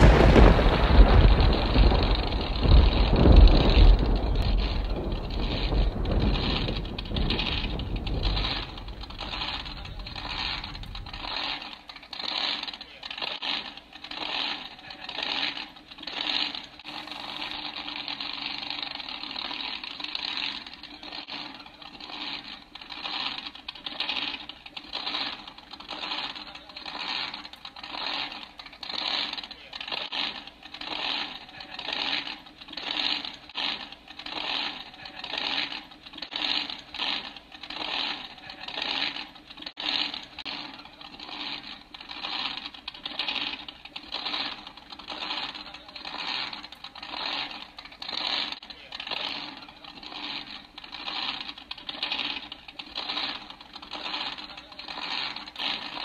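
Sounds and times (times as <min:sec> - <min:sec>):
deep boom: 0:00.0 - 0:11.2.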